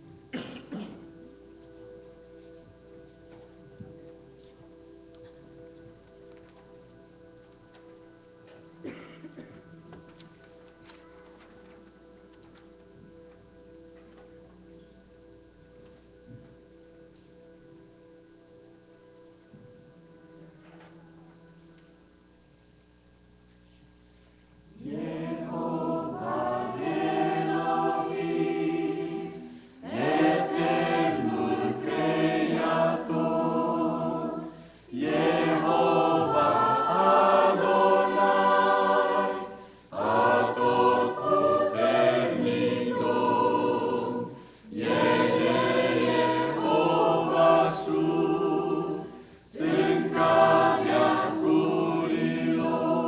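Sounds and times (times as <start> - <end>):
mixed choir singing: 24.7 - 53.0.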